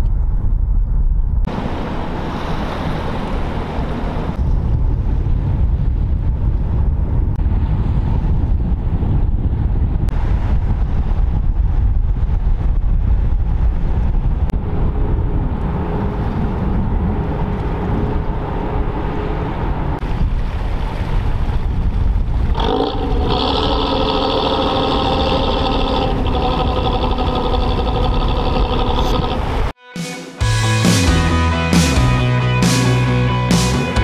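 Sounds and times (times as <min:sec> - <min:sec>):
wind buffeting microphone: 0:00.0 - 0:29.8
boat engines rumbling: 0:01.5 - 0:04.9, 0:14.5 - 0:29.8
music: 0:29.8 - 0:34.0.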